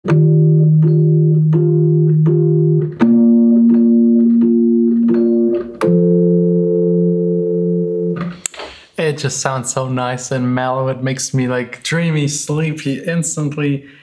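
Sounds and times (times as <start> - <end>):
electric piano chords: 0.0 - 8.4.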